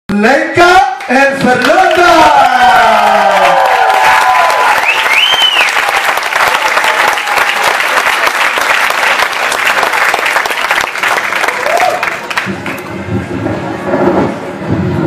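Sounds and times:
audience clapping and cheering: 1.0 - 12.9.

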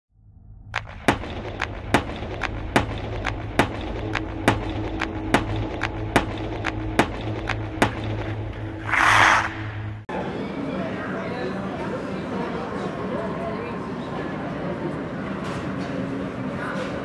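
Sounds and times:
steady low hum: 0.2 - 10.1
sharp stamping hits: 0.8 - 10.0.

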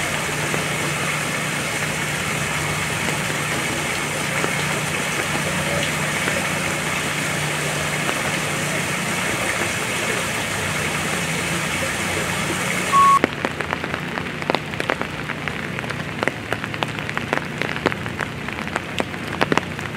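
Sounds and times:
vehicle engine idling hum: 0.0 - 12.9
raindrops ticking and splashing: 0.0 - 19.9
steady rain hiss: 0.0 - 19.9
short loud beep: 12.9 - 13.2.

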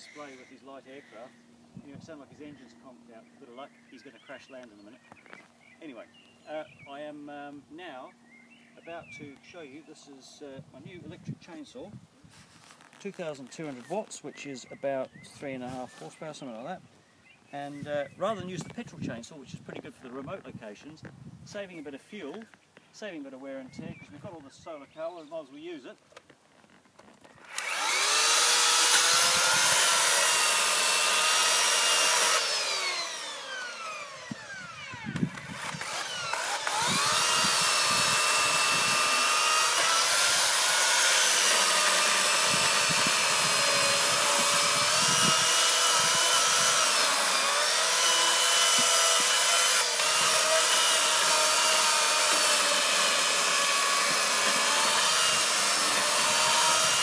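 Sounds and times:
electric chainsaw cutting logs: 27.2 - 57.0.

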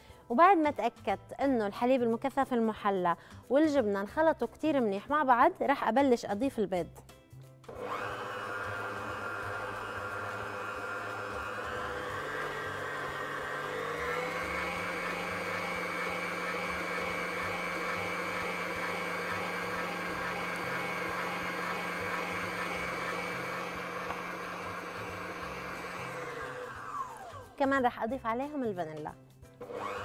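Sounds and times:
electric stand mixer whining: 7.7 - 27.5, 29.6 - 30.0.

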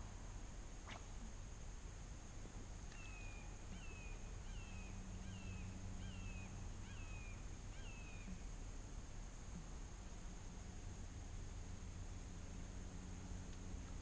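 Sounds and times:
bird calling faintly: 2.9 - 8.5.

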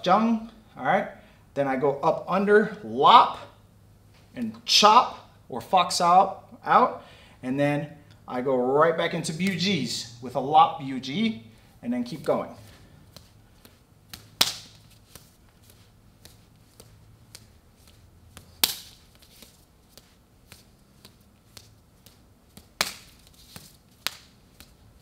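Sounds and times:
hands slapping together: 13.1 - 24.8.

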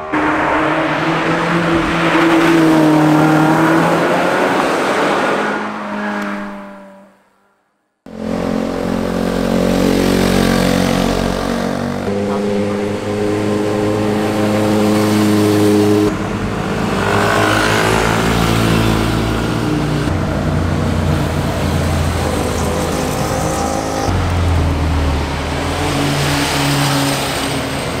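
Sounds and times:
motorcycles riding past: 8.1 - 28.0.

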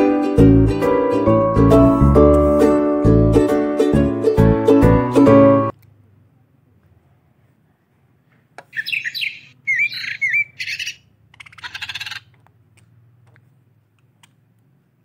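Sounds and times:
budgerigars chirping: 8.7 - 12.3
scratchy bird squawk: 8.7 - 12.4.

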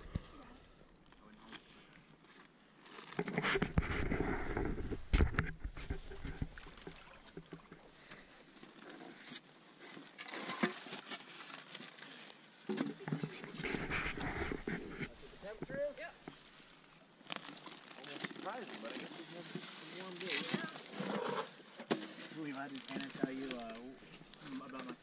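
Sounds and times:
water splashing and sloshing: 4.7 - 25.0.

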